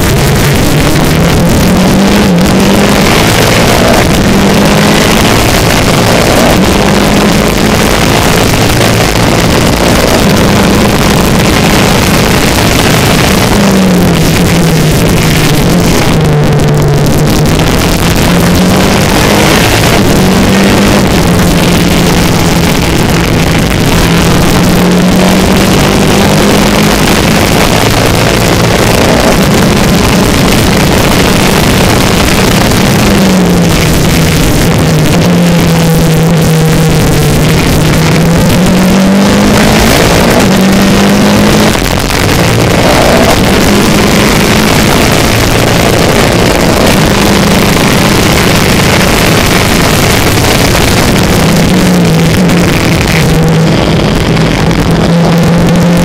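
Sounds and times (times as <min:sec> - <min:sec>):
race car engine at full throttle: 0:00.0 - 0:56.0
wind noise on microphone: 0:00.0 - 0:56.0.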